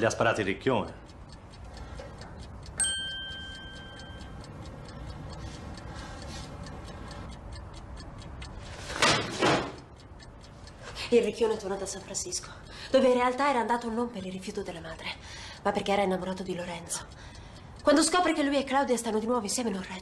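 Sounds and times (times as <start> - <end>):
clock ticking: 0.0 - 20.0
bright ding: 2.8 - 4.2.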